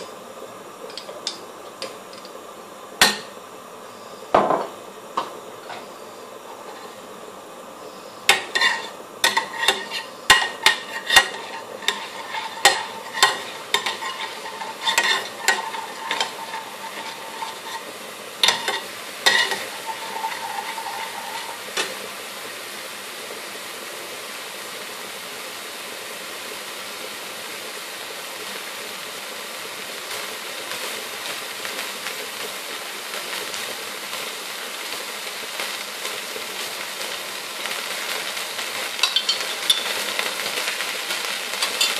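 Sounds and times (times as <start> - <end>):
paste sizzling in hot oil: 0.0 - 41.9
metal spoon clinking on pan: 8.3 - 17.8, 18.4 - 21.9, 39.0 - 39.9, 41.6 - 41.9.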